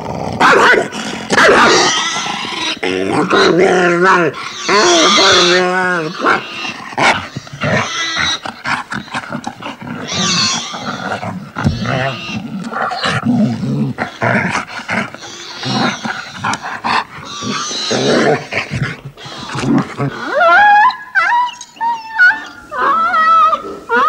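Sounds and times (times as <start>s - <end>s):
dog snarling and growling: 0.0s - 20.4s.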